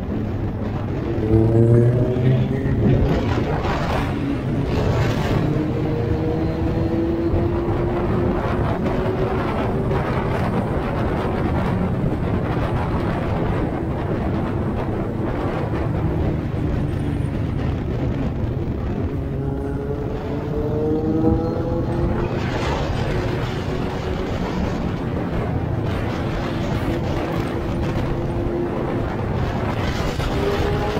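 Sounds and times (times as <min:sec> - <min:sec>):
wind rush on microphone: 0:00.0 - 0:30.9.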